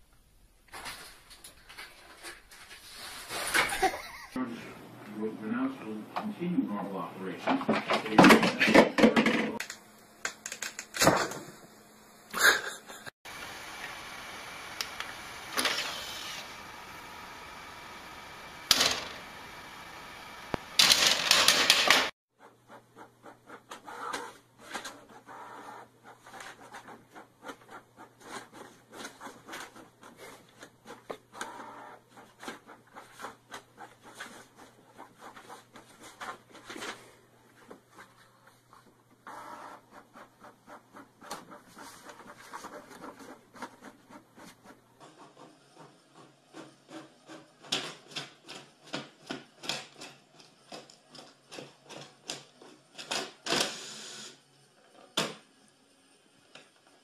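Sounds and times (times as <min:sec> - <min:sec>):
inkjet printer printing: 0:13.3 - 0:36.8, 0:39.2 - 0:54.0.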